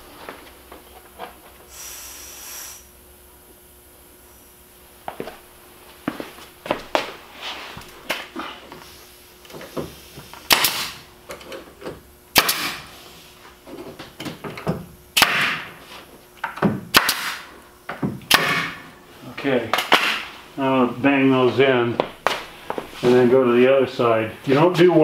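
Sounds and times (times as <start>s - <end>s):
nail gun shots: 10.5s - 11.0s, 12.3s - 12.9s, 15.2s - 15.7s, 16.9s - 17.5s, 18.2s - 18.8s, 19.8s - 20.2s.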